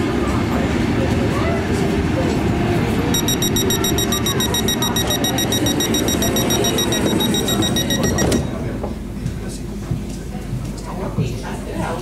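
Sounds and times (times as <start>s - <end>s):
low rumble of trains: 0.0s - 3.1s
rapid electronic warning beeping: 3.1s - 8.5s.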